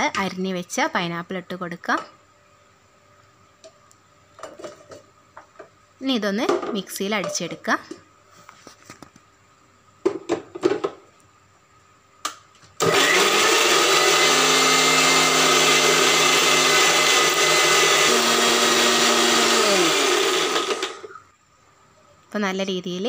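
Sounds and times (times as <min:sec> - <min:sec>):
mixer grinder motor: 0:12.8 - 0:21.2.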